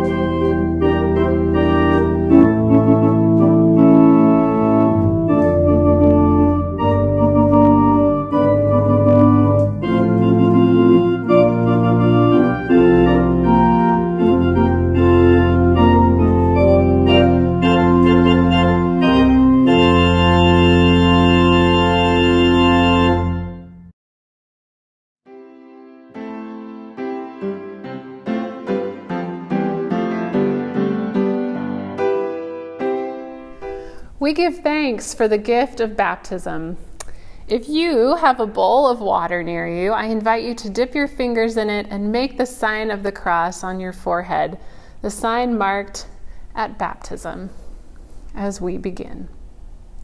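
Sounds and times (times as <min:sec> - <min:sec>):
organ playing slow chords: 0:00.0 - 0:23.9, 0:25.3 - 0:34.0.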